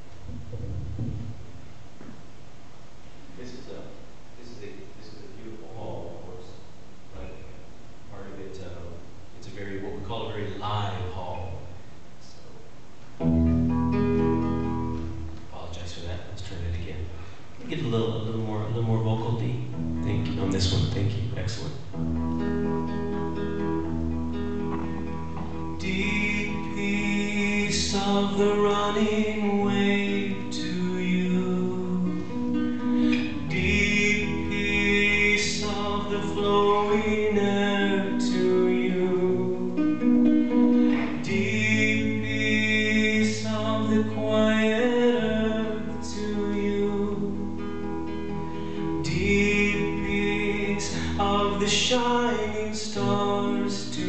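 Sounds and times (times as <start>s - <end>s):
acoustic guitar strumming: 13.2s - 15.7s, 17.2s - 54.0s
person singing: 25.8s - 39.8s, 40.5s - 47.4s, 49.0s - 54.0s.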